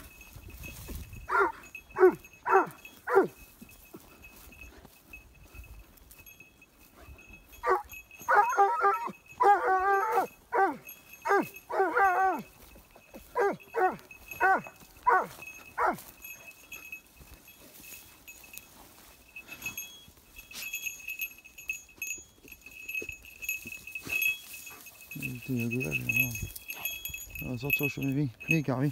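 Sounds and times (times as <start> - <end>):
dog yelping whines: 1.3 - 3.4, 7.6 - 12.5, 13.3 - 16.0.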